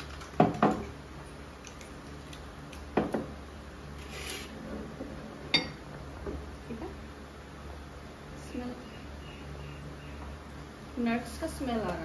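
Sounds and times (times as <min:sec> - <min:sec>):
tableware clicking and knocking: 0:05.5 - 0:05.8.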